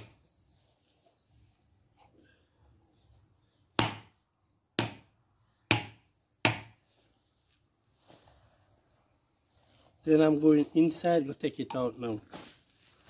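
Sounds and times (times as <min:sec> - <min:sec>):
coconut shell being struck: 0:03.8 - 0:04.1, 0:04.8 - 0:05.1, 0:05.7 - 0:06.8.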